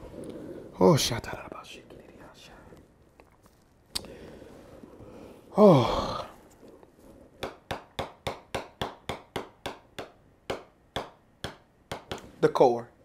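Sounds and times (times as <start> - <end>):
man sighing: 5.5 - 6.4
sharp evenly spaced taps: 7.4 - 12.3.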